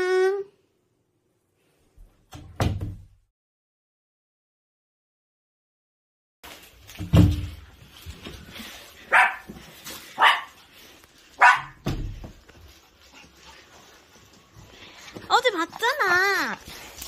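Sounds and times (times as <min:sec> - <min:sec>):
small dog barking: 0:09.1 - 0:09.5, 0:10.2 - 0:10.6, 0:11.4 - 0:11.8.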